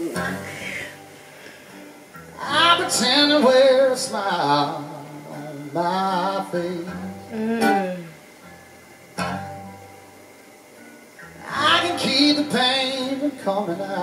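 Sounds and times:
man singing blues-country song: 0:00.0 - 0:01.1, 0:02.4 - 0:07.9, 0:11.4 - 0:14.0
acoustic guitar: 0:00.0 - 0:14.0.

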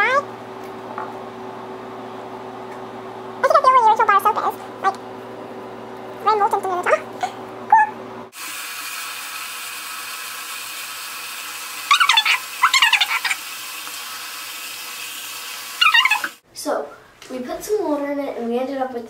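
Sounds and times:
shower sprayer hissing: 0:08.3 - 0:16.4
short high squeals: 0:15.8 - 0:16.4.

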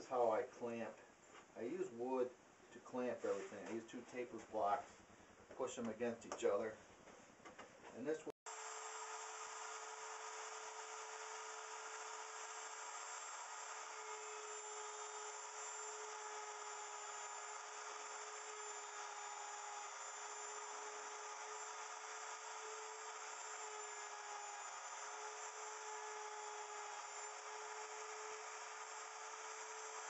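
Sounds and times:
wood router motor whining: 0:08.5 - 0:30.0.

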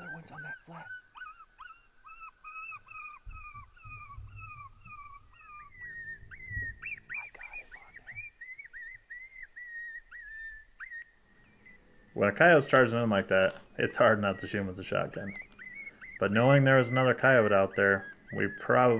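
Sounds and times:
electronic coyote pup yips: 0:00.0 - 0:11.8, 0:14.1 - 0:18.9
low thumps: 0:03.2 - 0:07.0.

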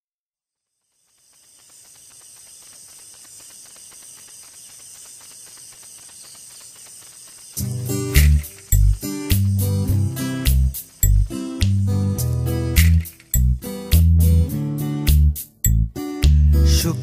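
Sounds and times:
crickets chirping: 0:00.6 - 0:13.8.

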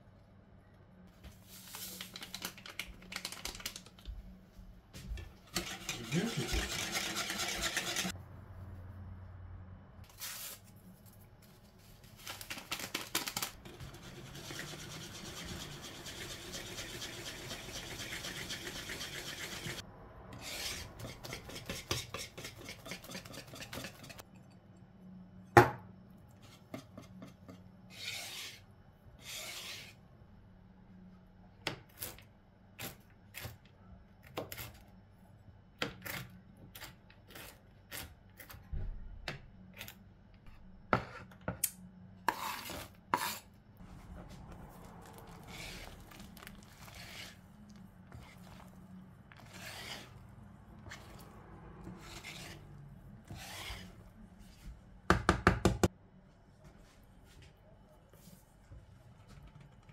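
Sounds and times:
whisk scraping batter in bowl: 0:05.4 - 0:08.1, 0:13.6 - 0:19.8, 0:20.4 - 0:24.2, 0:45.1 - 0:51.2, 0:51.8 - 0:54.1.

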